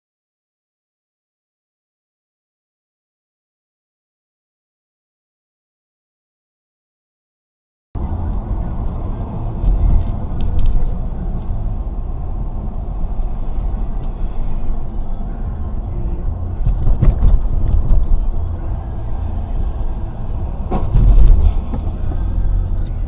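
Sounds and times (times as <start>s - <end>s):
car driving on road: 8.0s - 23.0s.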